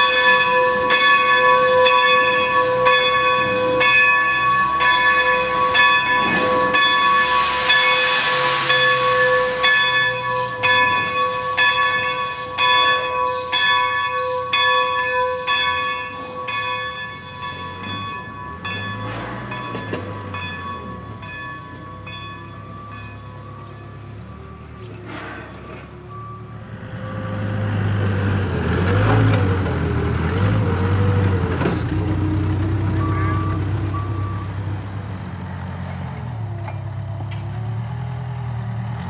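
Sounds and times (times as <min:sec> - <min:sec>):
locomotive bell ringing: 0:00.0 - 0:38.4
steam hissing: 0:06.3 - 0:10.0.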